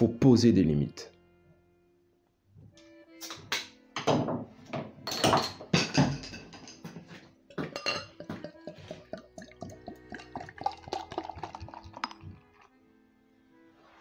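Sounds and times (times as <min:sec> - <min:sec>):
background music: 0:00.0 - 0:14.0
glass bottle clinking: 0:05.0 - 0:06.9, 0:07.5 - 0:12.7
bottle being opened: 0:07.7 - 0:12.7.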